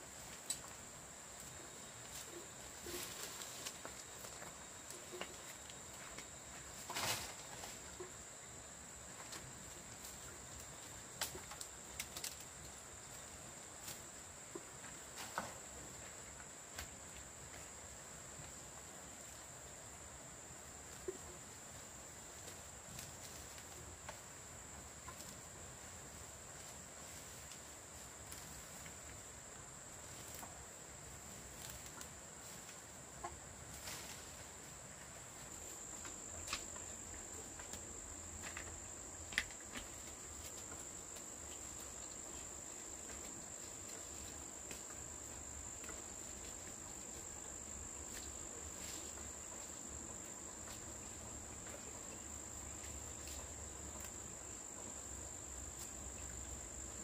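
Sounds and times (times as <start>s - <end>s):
high insect drone: 0.0s - 57.0s.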